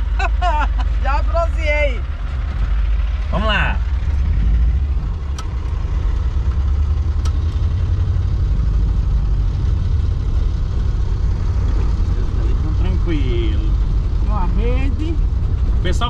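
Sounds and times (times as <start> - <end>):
van engine rumble: 0.0 - 16.0.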